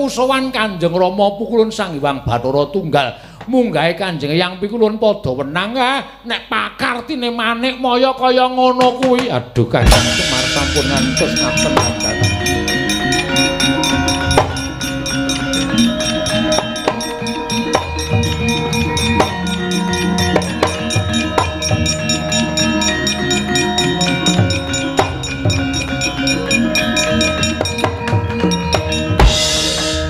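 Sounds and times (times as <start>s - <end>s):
sharp clacks: 8.8s - 29.4s
low drum: 9.8s - 30.0s
ringing metal tones: 9.9s - 30.0s.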